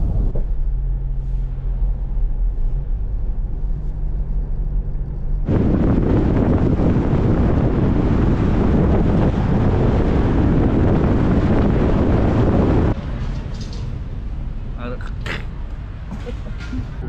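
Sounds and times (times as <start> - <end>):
low engine hum: 0.0 - 17.0
wind rushing over microphone: 5.3 - 13.8.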